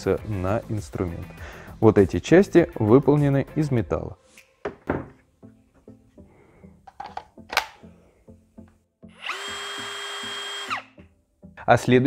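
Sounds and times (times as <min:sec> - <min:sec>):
quiet background music: 0:00.0 - 0:12.0
handling clicks and knocks: 0:06.9 - 0:07.8
cordless drill whining: 0:09.1 - 0:11.0.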